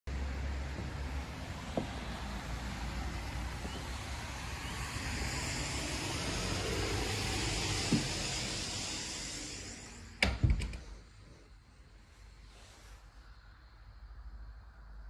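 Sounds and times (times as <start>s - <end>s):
vehicle passing on wet road: 0.1s - 9.8s
soft knocks: 0.7s - 2.9s.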